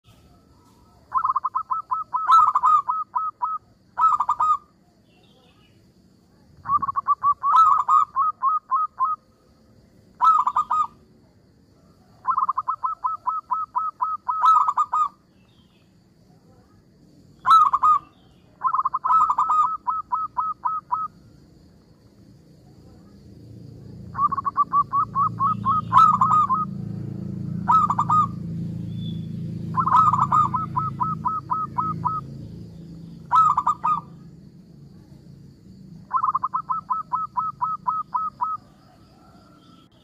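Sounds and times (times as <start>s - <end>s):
dove cooing: 1.0s - 4.7s, 6.6s - 9.3s, 10.2s - 11.0s, 11.9s - 15.2s, 17.4s - 21.2s, 24.1s - 26.8s, 27.4s - 28.5s, 29.6s - 32.3s, 33.2s - 34.2s, 36.0s - 39.6s.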